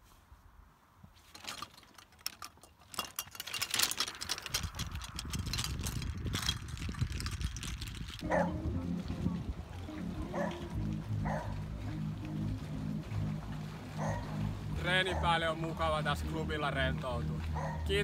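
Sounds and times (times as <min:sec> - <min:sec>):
golf clubs rattling in bag: 0:01.2 - 0:08.2
low rumble: 0:04.8 - 0:18.0.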